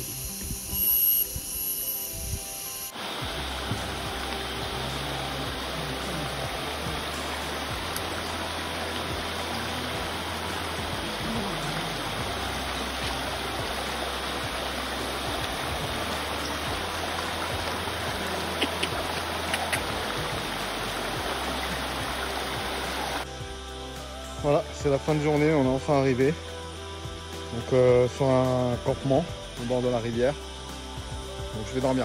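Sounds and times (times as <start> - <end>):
stream running over stones: 3.0 - 23.3.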